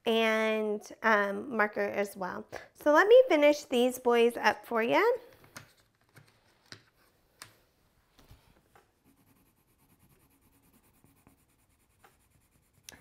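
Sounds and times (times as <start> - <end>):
colouring strokes on paper: 9.0 - 13.0.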